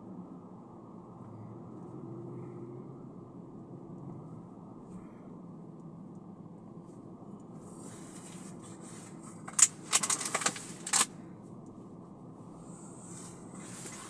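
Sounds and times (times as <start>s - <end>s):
car road rumble: 0.0s - 14.0s
sharp clicks and clatters: 9.3s - 11.1s.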